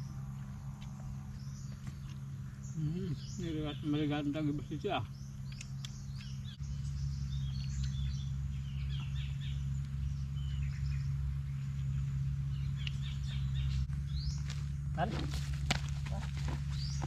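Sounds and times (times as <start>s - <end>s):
birds chirping: 0.0s - 17.0s
steady low rumble: 0.0s - 17.0s.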